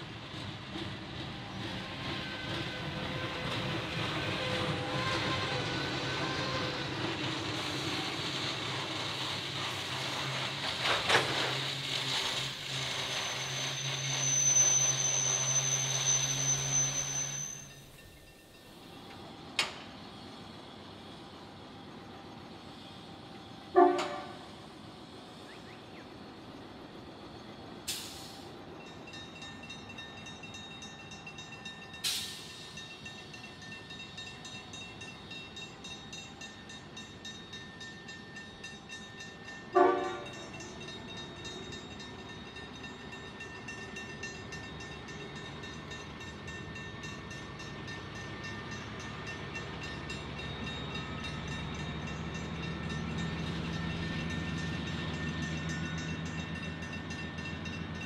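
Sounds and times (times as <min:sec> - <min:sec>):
approaching train engine: 0:00.0 - 0:58.0
locomotive horn blast: 0:23.7 - 0:24.5, 0:39.8 - 0:40.4.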